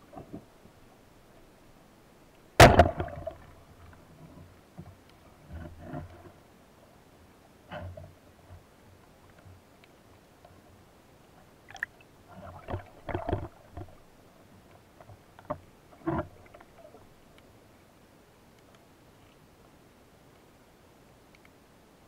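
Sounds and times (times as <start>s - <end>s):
faint steady hiss: 0.0s - 22.0s
muffled underwater knocks: 12.6s - 14.0s.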